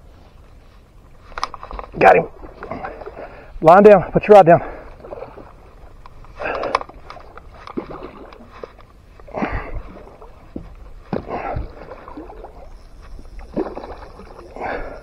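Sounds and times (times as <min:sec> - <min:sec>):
splashes in shallow water: 0:04.7 - 0:15.0.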